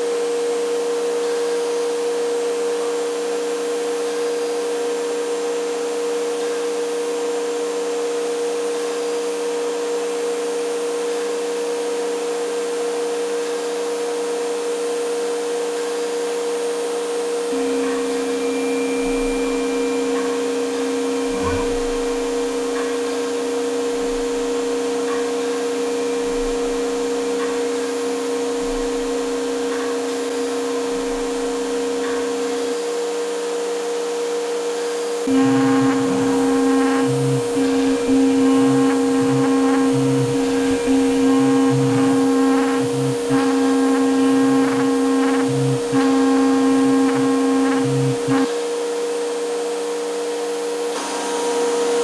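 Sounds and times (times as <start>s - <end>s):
router spindle high whine: 0.0s - 52.0s
bit grinding through board: 35.3s - 48.5s.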